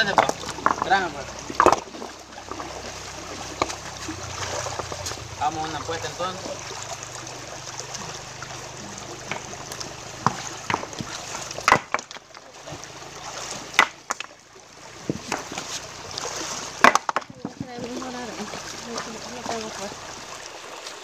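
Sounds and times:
stones knocking together: 0.0s - 1.9s, 9.2s - 9.6s, 10.2s - 12.8s, 13.7s - 14.4s, 15.0s - 15.7s, 16.8s - 18.0s
stream running over rocks: 0.0s - 21.0s.

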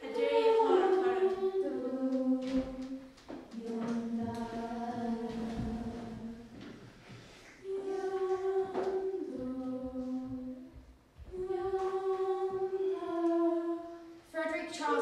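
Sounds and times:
woman singing unaccompanied: 0.0s - 6.5s.

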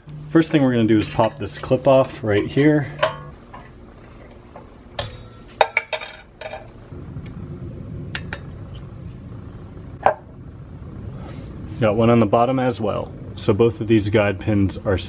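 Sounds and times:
low steady hum: 0.0s - 15.0s
metal spring clip clinking: 5.0s - 6.7s.

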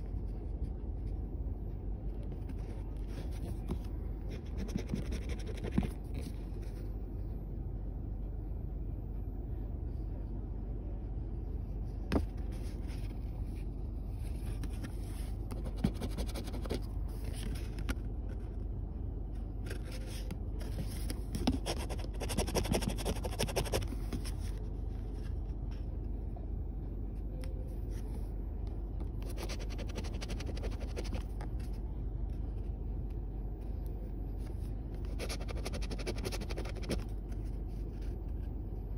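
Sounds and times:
steady low hum: 0.0s - 38.9s
coin scratching lottery ticket: 35.1s - 37.0s.

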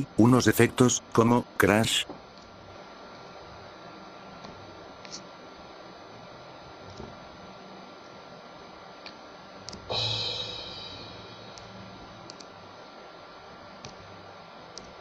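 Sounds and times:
crash cymbal hit: 9.9s - 11.8s.

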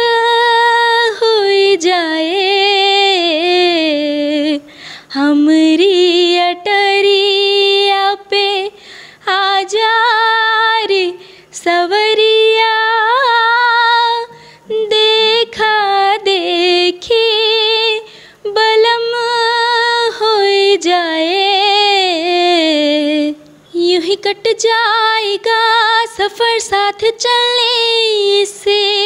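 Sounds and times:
woman singing unaccompanied: 0.0s - 29.0s.

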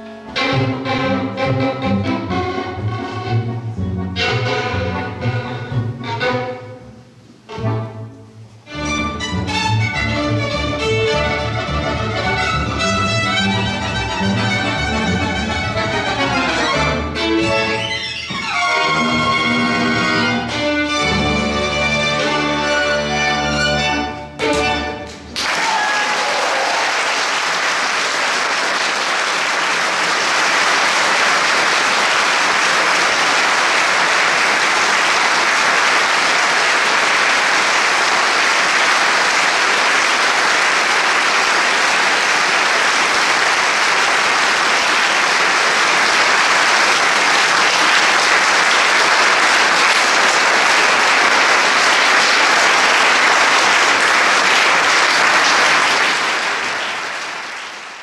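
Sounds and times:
violin accordion and bass trio: 0.2s - 25.0s
audience applause: 25.3s - 58.0s.

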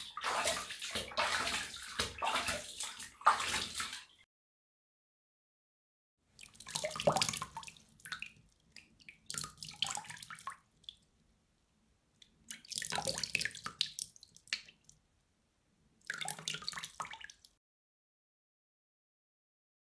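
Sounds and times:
water splashing: 0.0s - 4.2s, 6.4s - 11.0s, 12.5s - 14.8s, 16.1s - 17.5s.

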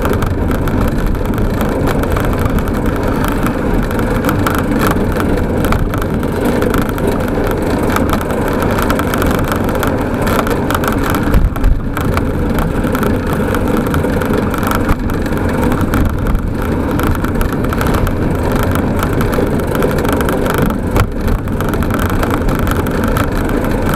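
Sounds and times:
tyres rumbling on road: 0.0s - 23.9s.

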